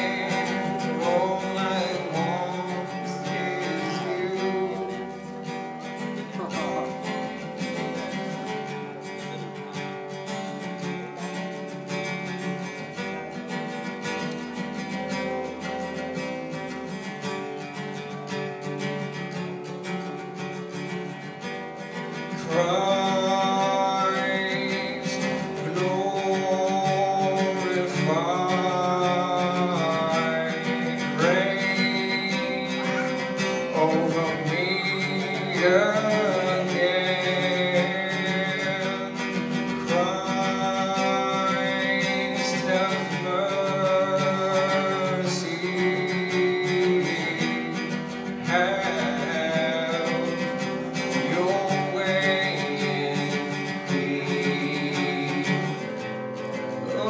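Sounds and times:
acoustic guitar: 0:00.0 - 0:57.0
man singing: 0:00.0 - 0:57.0.

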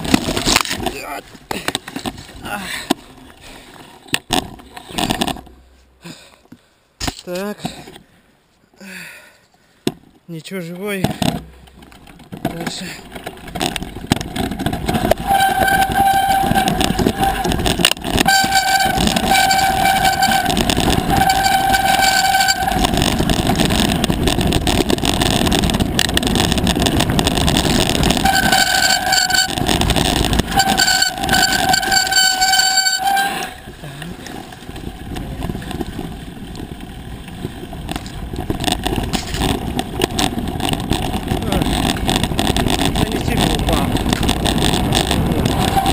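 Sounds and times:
tyres rumbling on rocky trail: 0:00.0 - 0:45.9
wind on microphone: 0:13.6 - 0:33.8, 0:34.5 - 0:45.9
bike brakes squealing: 0:15.0 - 0:17.6, 0:18.2 - 0:22.9, 0:28.2 - 0:29.6, 0:30.5 - 0:33.7, 0:45.5 - 0:45.9.

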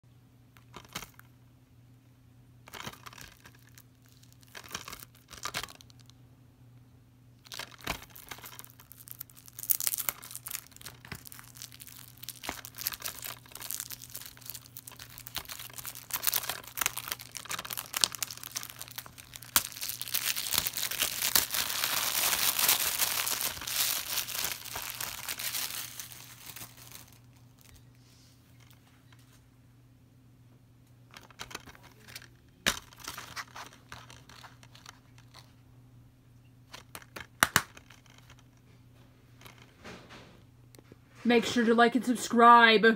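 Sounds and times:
plastic shrink wrap crinkling: 0:02.7 - 0:06.1, 0:07.4 - 0:28.8, 0:31.2 - 0:35.6
crackles and taps: 0:02.7 - 0:06.2, 0:07.4 - 0:29.4, 0:36.4 - 0:40.9.

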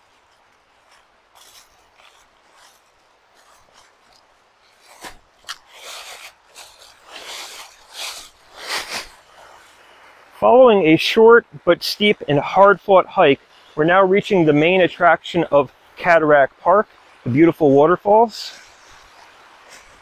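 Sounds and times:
footsteps in dry leaves: 0:00.0 - 0:10.3, 0:18.5 - 0:20.0.

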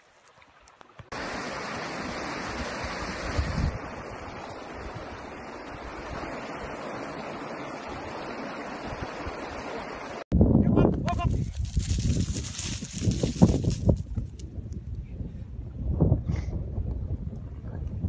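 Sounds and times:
wind buffeting microphone: 0:02.4 - 0:06.9, 0:10.3 - 0:18.0.

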